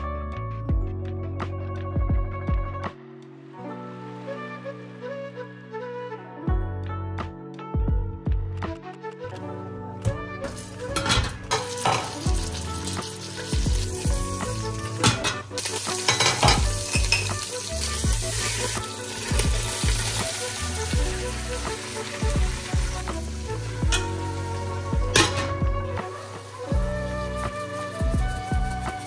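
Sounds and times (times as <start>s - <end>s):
food sizzling in a pan: 10.5s - 29.0s.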